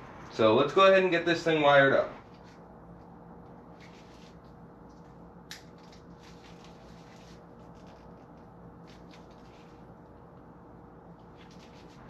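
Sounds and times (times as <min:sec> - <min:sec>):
faint steady hum: 0:00.0 - 0:12.0
handling thin wires: 0:02.2 - 0:12.0.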